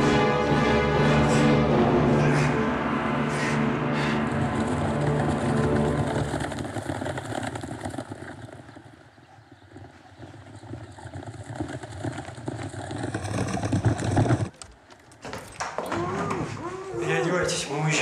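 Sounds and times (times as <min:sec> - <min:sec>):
horses galloping: 0:04.2 - 0:17.4.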